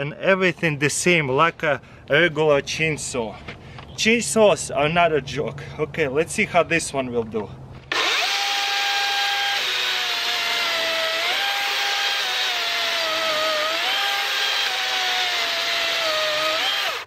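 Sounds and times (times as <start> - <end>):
electric chainsaw whining: 7.9 - 17.0.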